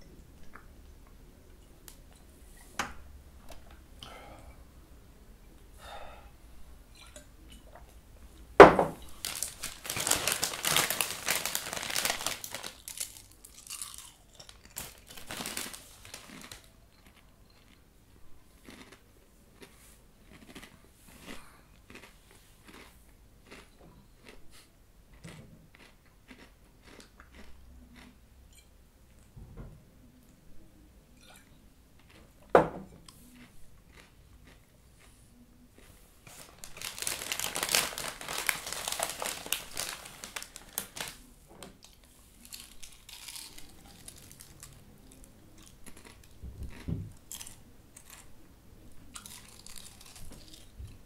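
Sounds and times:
packaging crinkling: 9.1s - 17.2s, 36.3s - 45.3s, 49.2s - 50.7s
crunching crisps: 9.1s - 17.8s, 18.6s - 19.0s, 19.6s - 24.4s, 35.8s - 48.3s, 49.1s - 50.8s.

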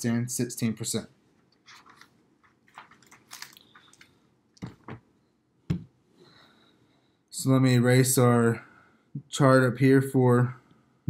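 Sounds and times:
soft rustling: 1.2s - 4.9s.

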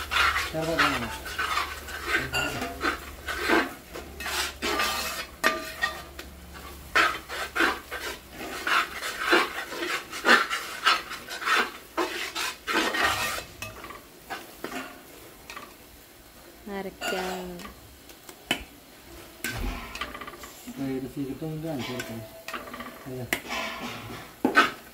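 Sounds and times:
spoon scraping a pan: 0.0s - 15.8s, 16.9s - 17.8s, 19.4s - 24.9s.

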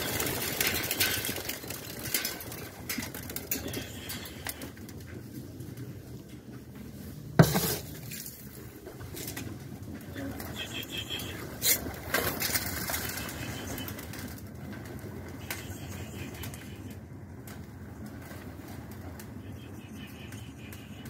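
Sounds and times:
wing flaps: 0.0s - 4.7s.

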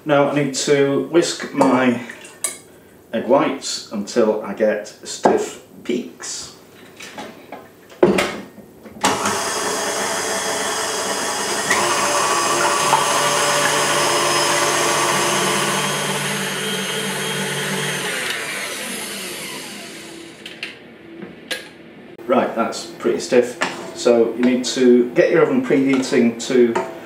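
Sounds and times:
electric mixer motor whirring: 9.0s - 20.7s.

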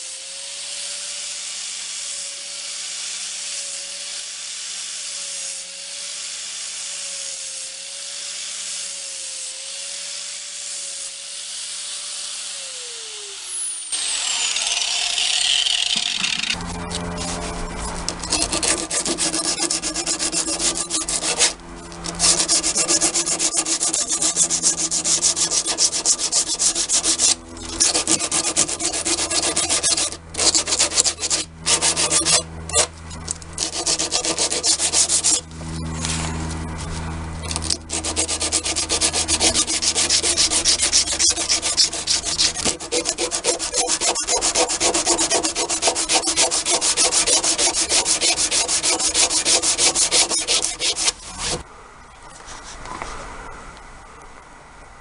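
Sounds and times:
sandpaper rubbing on wood: 16.1s - 32.9s, 33.6s - 51.6s, 52.4s - 52.8s.

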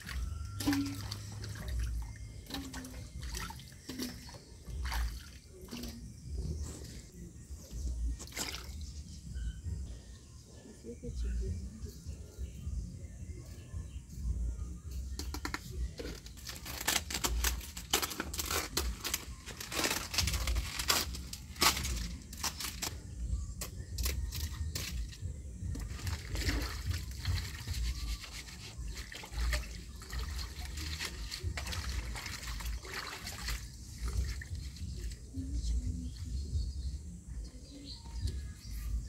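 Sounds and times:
water pouring and splashing: 0.0s - 7.1s, 8.2s - 8.9s, 16.0s - 22.9s, 24.0s - 35.4s.

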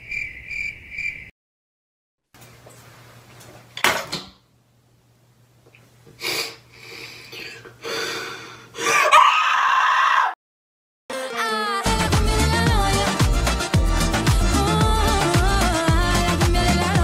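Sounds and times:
loud wavering vocal wail: 8.8s - 10.4s.

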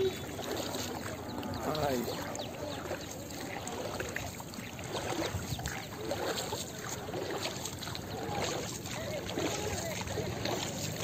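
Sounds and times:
water lapping around boat: 0.0s - 11.0s.

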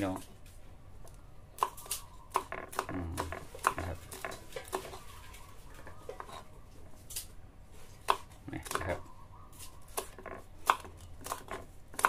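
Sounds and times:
knife chopping on wooden board: 1.6s - 5.0s, 8.0s - 9.0s, 9.9s - 12.0s.

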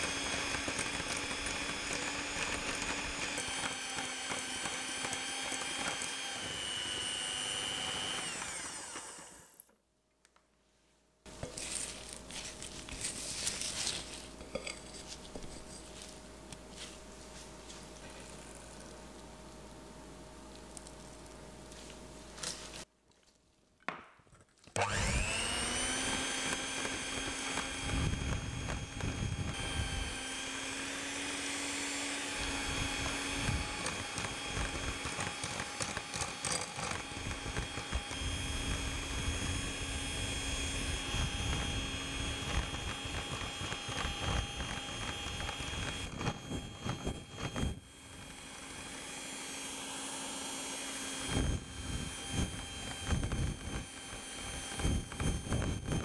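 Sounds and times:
electric hand mixer whining: 0.0s - 9.7s, 24.8s - 56.0s.

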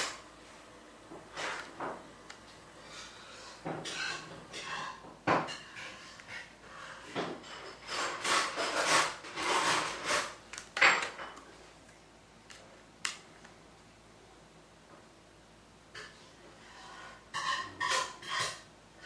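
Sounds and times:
rubbing and rustling: 5.8s - 11.8s.

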